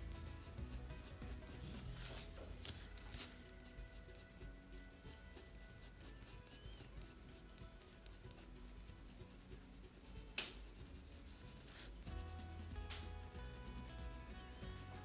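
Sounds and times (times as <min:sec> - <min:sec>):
faint background music: 0:00.0 - 0:15.0
pencil scratching on paper: 0:00.0 - 0:15.0.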